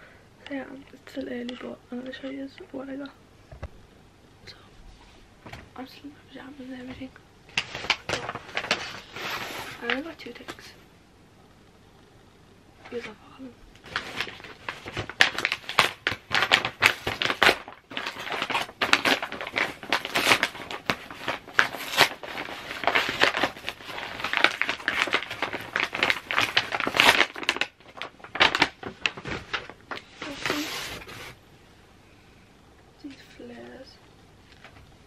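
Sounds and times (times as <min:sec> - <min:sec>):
paper bag crinkling and tearing: 0:07.5 - 0:10.5, 0:13.8 - 0:31.4.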